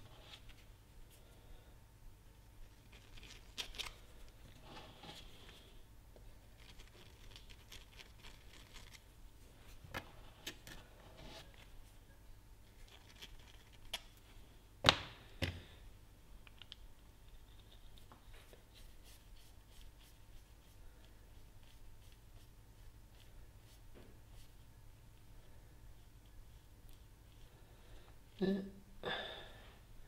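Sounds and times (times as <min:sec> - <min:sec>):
faint tool scraping: 0:04.0 - 0:05.8, 0:09.6 - 0:11.8.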